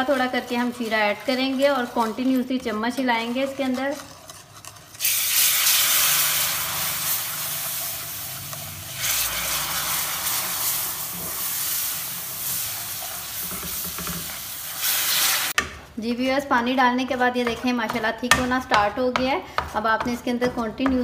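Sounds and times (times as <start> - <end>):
spoon stirring: 0.0 - 5.5, 16.1 - 21.0
syrup sizzling in hot fat: 4.6 - 15.6.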